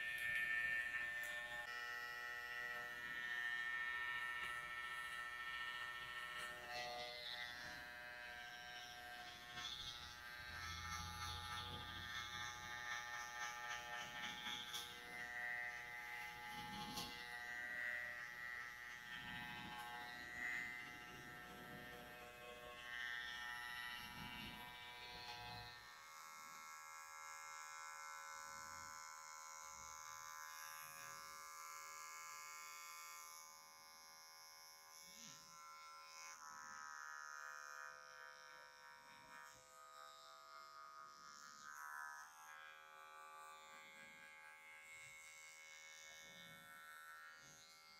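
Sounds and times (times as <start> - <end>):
electric hair clipper buzzing: 0.0 - 47.9.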